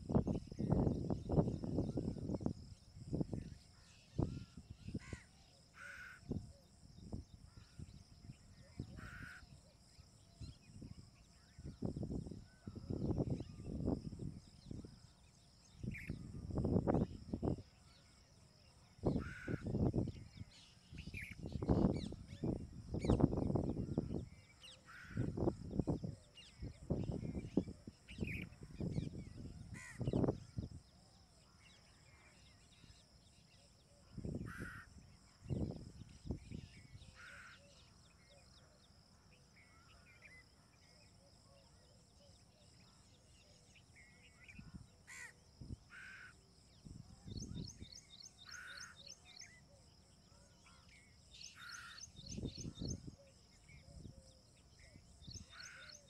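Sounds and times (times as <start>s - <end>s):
high insect drone: 0.0s - 56.0s
birds calling: 19.0s - 30.7s, 47.3s - 49.6s, 50.6s - 53.2s, 54.9s - 56.0s.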